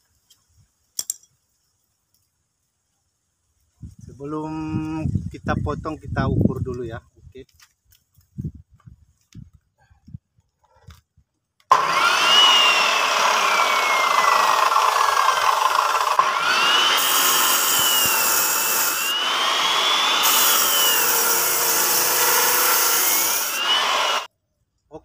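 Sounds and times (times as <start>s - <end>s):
cut-off saw motor whine: 11.7s - 24.3s
disc grinding into wire: 11.7s - 24.3s.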